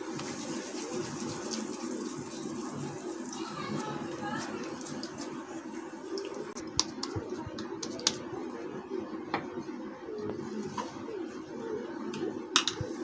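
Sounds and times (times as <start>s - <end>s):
hands patting soft mixture: 0.0s - 5.4s, 6.5s - 8.3s.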